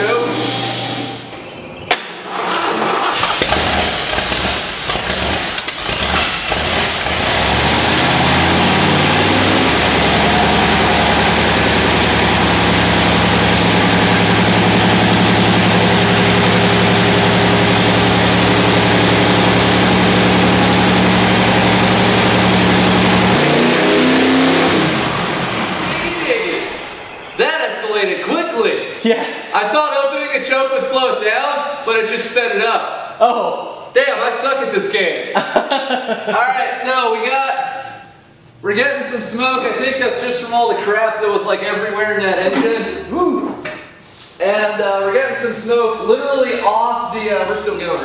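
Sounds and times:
engine starting and racing: 0:00.0 - 0:27.2.

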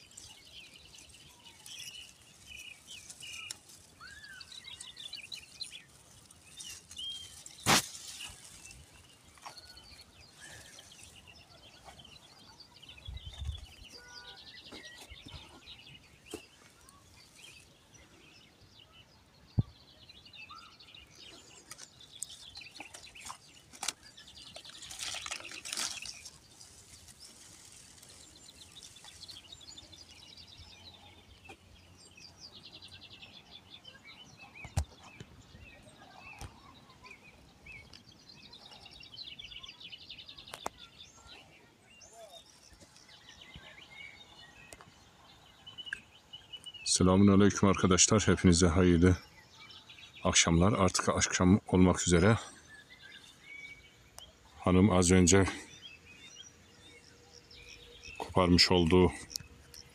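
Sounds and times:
rustle of weeds being pulled: 0:00.0 - 0:12.5, 0:21.2 - 0:30.3
small birds chirping: 0:00.0 - 0:59.9.

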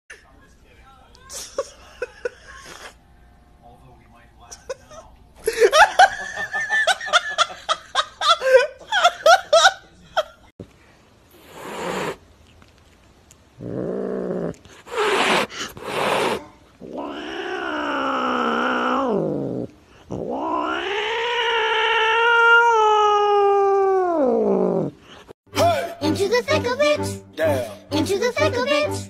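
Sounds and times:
cat hissing: 0:11.3 - 0:12.2, 0:13.6 - 0:23.3
cat yowling: 0:16.0 - 0:24.9.

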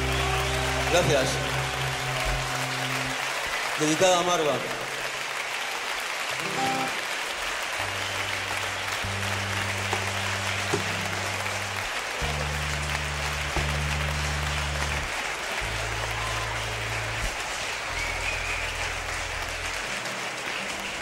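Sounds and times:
audience applauding: 0:00.0 - 0:21.0
instrument playing low notes: 0:07.8 - 0:17.2.

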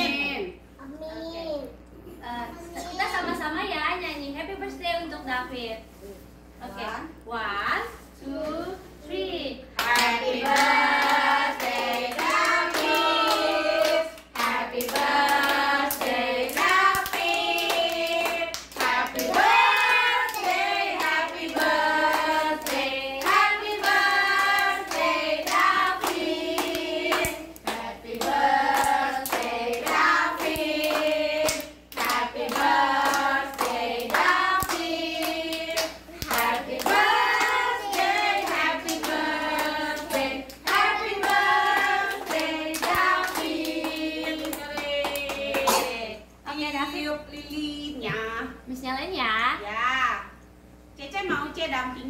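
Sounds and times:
group singing in chorus: 0:09.8 - 0:46.2.

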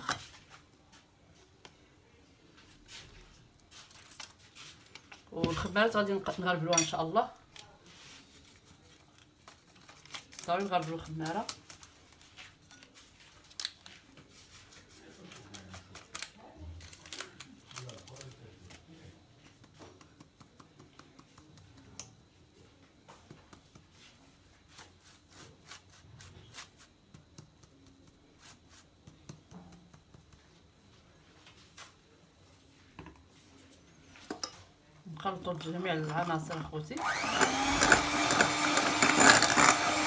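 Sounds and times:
soft rustle: 0:07.6 - 0:10.8, 0:11.6 - 0:16.2.

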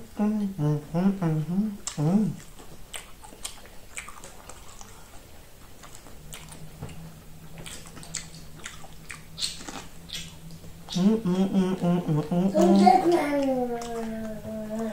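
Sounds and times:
person chewing corn: 0:01.8 - 0:12.3.

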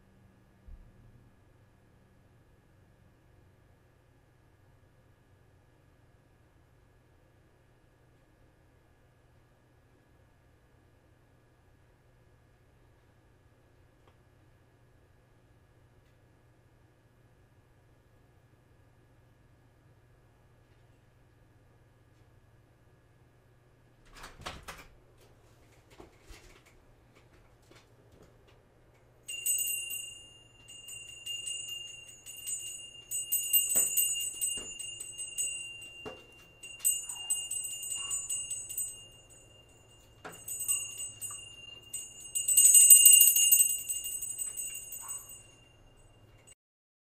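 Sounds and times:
small jingle bell jingling: 0:29.3 - 0:46.5.

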